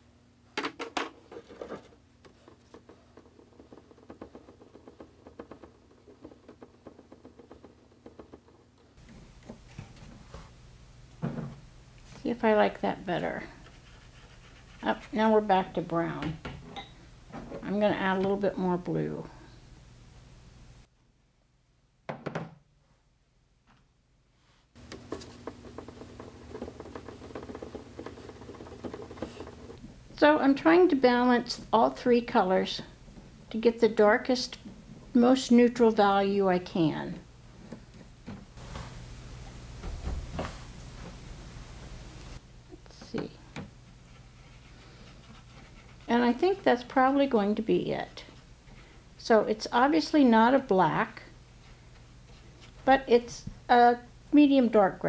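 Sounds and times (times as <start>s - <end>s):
paintbrush scraping plastic palette: 13.4s - 15.4s, 25.0s - 29.8s, 43.9s - 46.9s
paintbrush scrubbing in palette: 13.6s - 15.3s, 43.9s - 46.6s.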